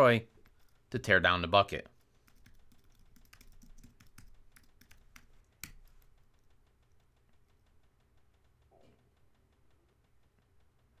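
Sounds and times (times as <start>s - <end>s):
typing on computer keyboard: 1.9s - 7.7s.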